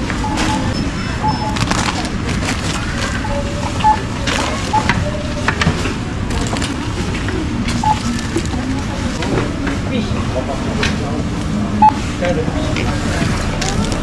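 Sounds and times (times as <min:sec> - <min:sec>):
store background noise: 0:00.0 - 0:14.0
short electronic beeps: 0:00.2 - 0:02.0, 0:03.1 - 0:05.3, 0:07.8 - 0:09.2, 0:11.8 - 0:12.0
groceries knocking and rustling: 0:01.5 - 0:09.8.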